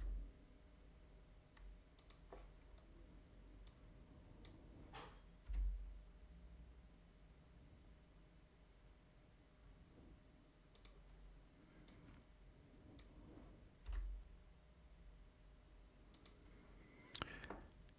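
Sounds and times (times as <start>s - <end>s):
computer mouse clicks: 1.5s - 2.9s, 4.4s - 5.7s, 10.7s - 11.1s, 11.8s - 12.2s, 12.9s - 13.2s, 16.1s - 16.4s.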